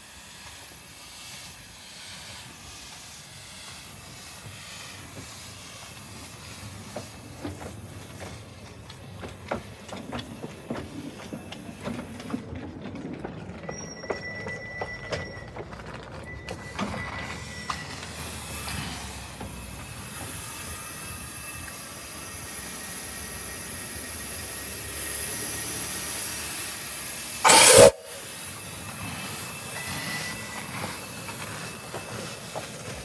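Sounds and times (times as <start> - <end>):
steam hissing: 0.0 - 12.1, 17.2 - 33.0
wheels clicking over rail joints: 3.7 - 22.0, 26.8 - 33.0
wheel squeals: 10.2 - 26.2, 27.4 - 33.0.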